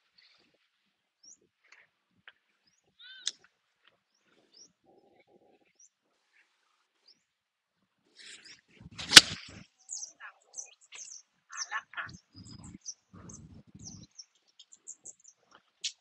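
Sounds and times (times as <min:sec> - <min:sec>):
birds chirping: 0:02.6 - 0:03.5, 0:04.1 - 0:06.0, 0:08.2 - 0:16.0
golf club striking ball: 0:09.0 - 0:09.4.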